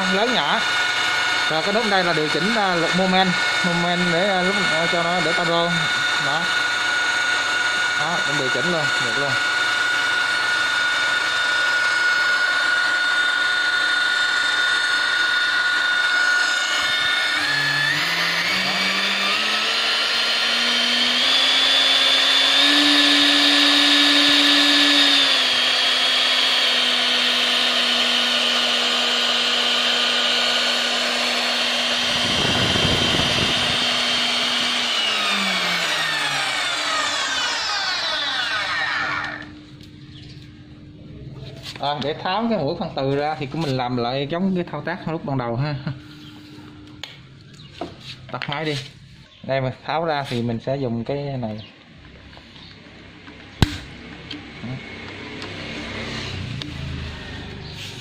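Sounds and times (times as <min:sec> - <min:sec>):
magnetic drill motor whining: 0:00.0 - 0:43.9.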